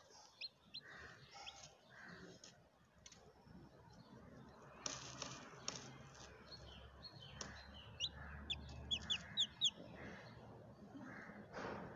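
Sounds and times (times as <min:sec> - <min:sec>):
chick peeping: 0:00.0 - 0:01.6, 0:07.0 - 0:09.9.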